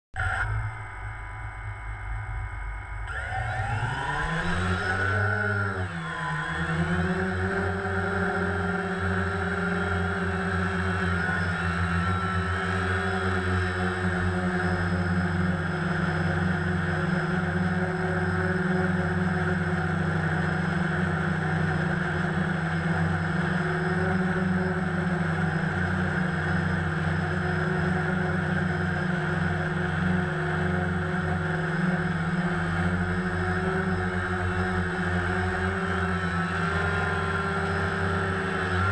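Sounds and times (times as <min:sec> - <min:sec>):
drone motors humming: 0:00.1 - 0:38.9.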